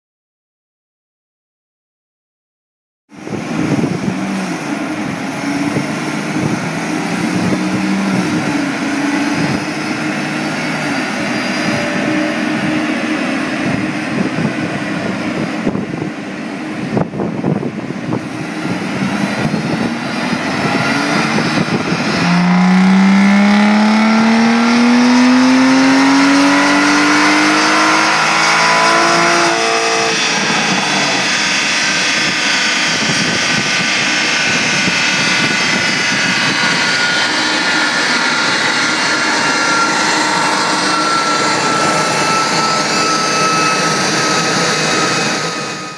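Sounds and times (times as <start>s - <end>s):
car engine revving: 18.4s - 33.0s, 33.6s - 45.9s.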